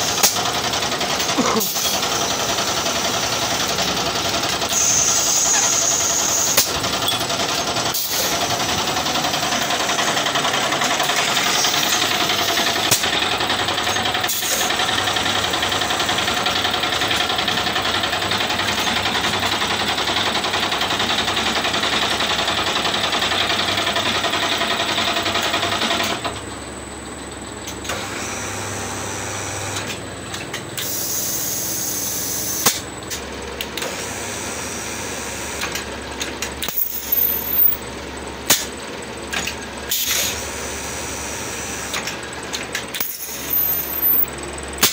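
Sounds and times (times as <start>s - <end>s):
machinery mechanical clatter: 0.0s - 26.5s, 35.5s - 40.5s, 41.7s - 44.9s
sharp machine clicks: 0.1s - 17.5s, 35.6s - 37.8s, 41.9s - 44.9s.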